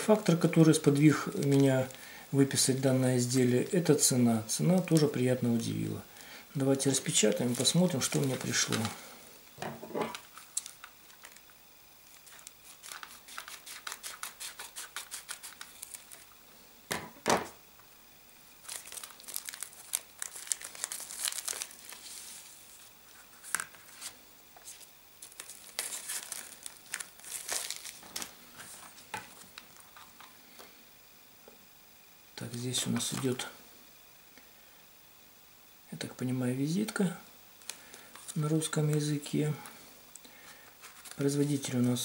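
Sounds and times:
envelope crinkling and tearing: 7.1s - 9.1s, 10.1s - 16.3s, 18.6s - 30.3s, 40.8s - 41.9s.

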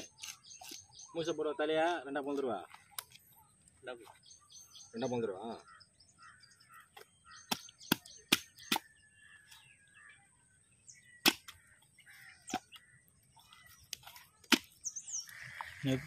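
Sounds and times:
faint birdsong: 0.0s - 16.0s.

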